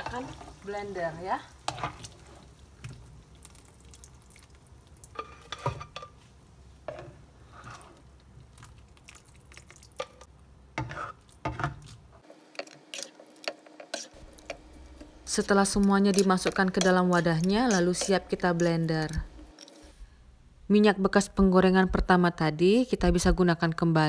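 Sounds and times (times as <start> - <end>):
spatula scraping a wok: 1.6 - 2.5, 5.1 - 6.2, 6.8 - 8.1, 10.8 - 11.8, 12.6 - 18.8.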